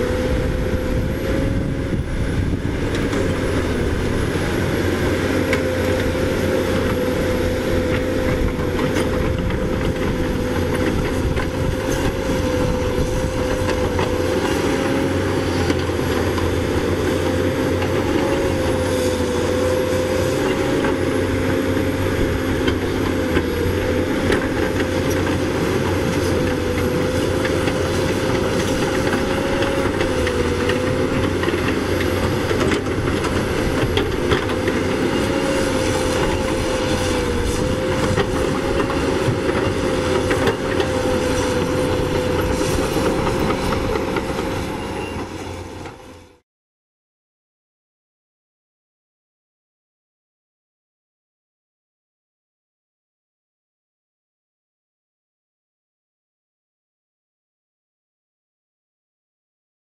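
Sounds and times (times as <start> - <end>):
excavator engine droning: 0.0 - 46.4.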